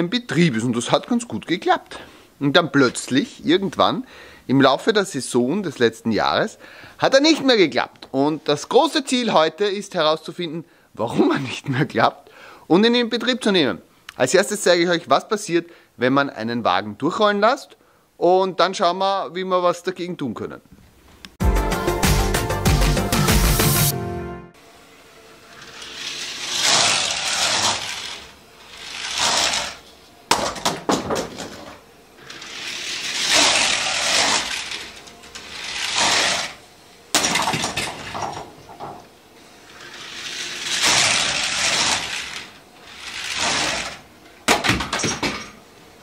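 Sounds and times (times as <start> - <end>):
toy train wheels rattling on track: 25.4 - 29.8, 32.2 - 36.6, 39.7 - 44.0.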